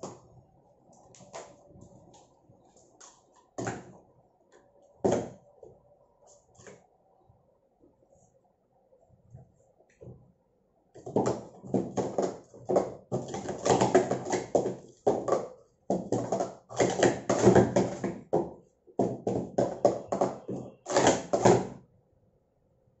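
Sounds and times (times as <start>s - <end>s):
plastic cups clacking: 11.0s - 21.7s.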